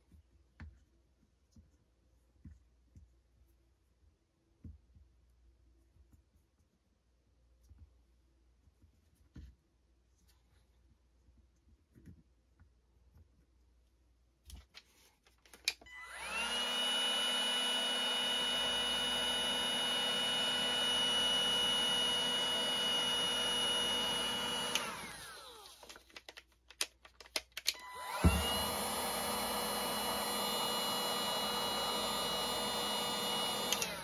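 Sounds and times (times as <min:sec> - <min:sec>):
cordless drill motor whining: 0:15.9 - 0:25.9, 0:27.7 - 0:34.0.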